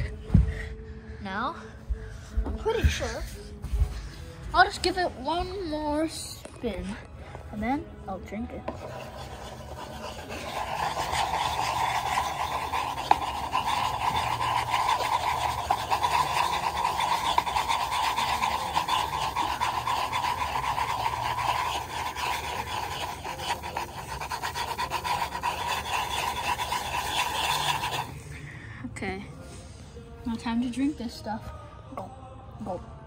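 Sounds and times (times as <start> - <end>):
plastic cup scraping on wooden floor: 8.6 - 28.1.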